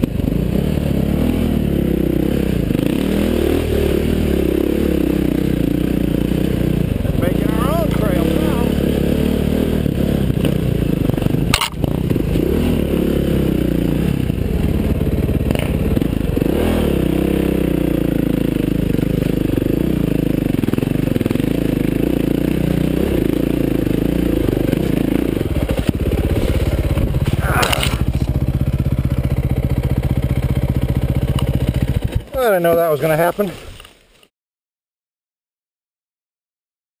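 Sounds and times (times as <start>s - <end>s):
dirt bike engine revving: 0.0s - 33.3s
scraping and clattering on rocks: 25.8s - 28.4s.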